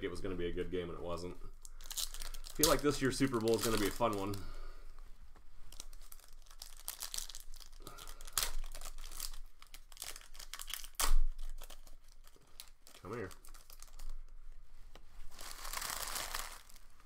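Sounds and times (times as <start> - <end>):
card pack wrappers crinkling: 1.6 - 4.5, 5.7 - 14.2, 15.3 - 17.0.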